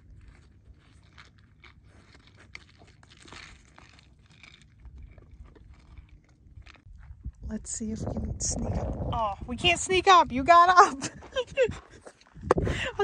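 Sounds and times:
dog chewing on stick: 0:00.0 - 0:07.2.

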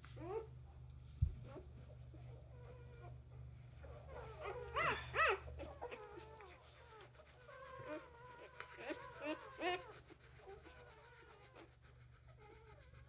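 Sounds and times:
puppies squeaking and crying: 0:03.8 - 0:13.0.

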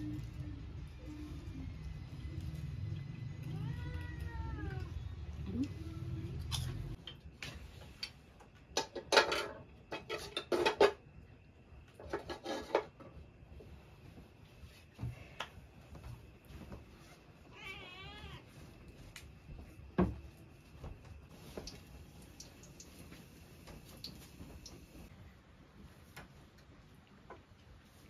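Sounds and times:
cat meowing: 0:03.4 - 0:05.0, 0:17.5 - 0:18.5.

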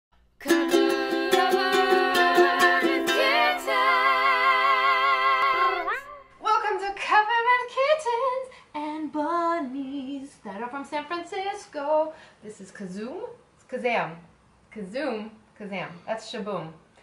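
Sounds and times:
ukulele strumming: 0:00.4 - 0:06.1
woman singing: 0:00.4 - 0:12.2.

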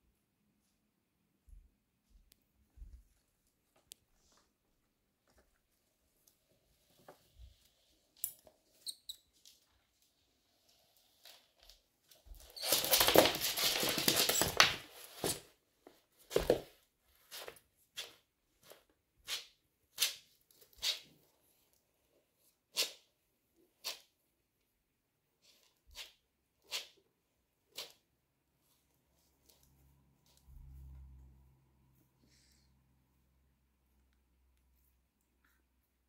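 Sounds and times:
animal scuffle: 0:12.1 - 0:15.5.

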